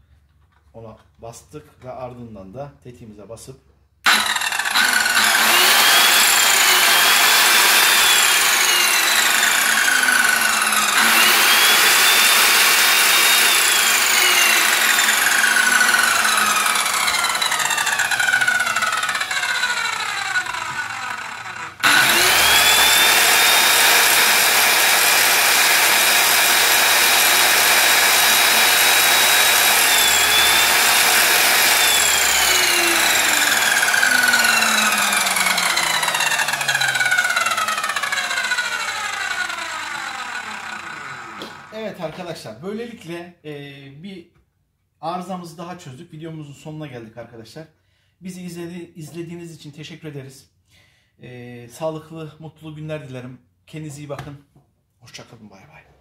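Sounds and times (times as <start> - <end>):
circular saw whining: 4.1 - 42.0.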